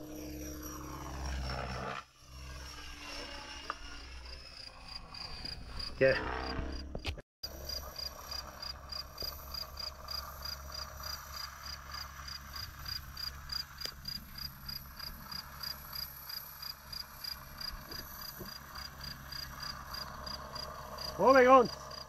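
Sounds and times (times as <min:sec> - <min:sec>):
cricket chirping: 0:04.3 - 0:06.9, 0:07.5 - 0:22.0.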